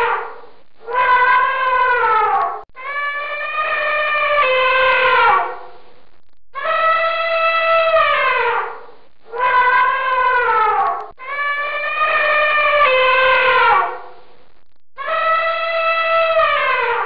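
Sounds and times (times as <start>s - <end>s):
elephant trumpeting: 0.0s - 5.6s, 6.6s - 14.1s.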